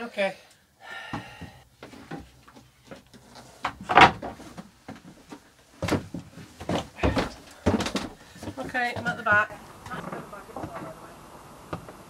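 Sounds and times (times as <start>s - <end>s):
footsteps on wooden floor: 1.2s - 10.8s
wooden knocks and bumps: 3.6s - 10.9s.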